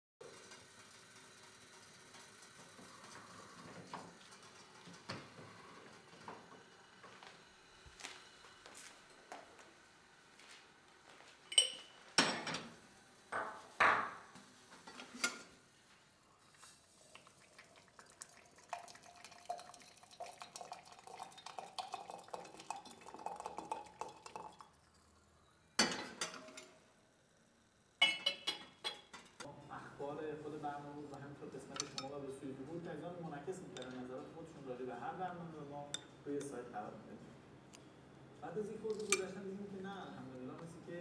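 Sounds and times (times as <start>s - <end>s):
crockery clinking: 11.5s - 12.6s, 28.0s - 29.4s.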